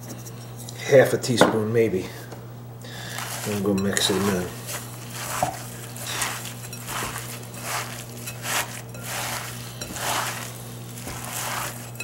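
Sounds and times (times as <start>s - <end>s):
hands squelching wet meat mixture: 2.8s - 12.0s.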